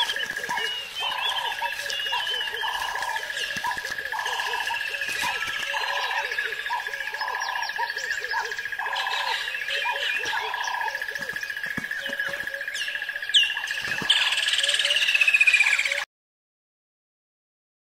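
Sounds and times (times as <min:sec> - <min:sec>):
whistled calls gliding down: 0:00.0 - 0:11.4
birds chirping and calling: 0:00.0 - 0:16.0.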